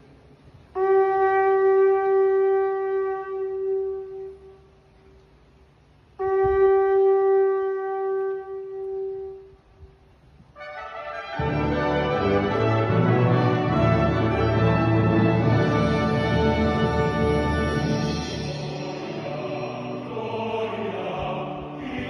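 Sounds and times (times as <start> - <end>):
long horn blasts: 0.8 - 4.7, 6.2 - 9.5, 10.6 - 19.6.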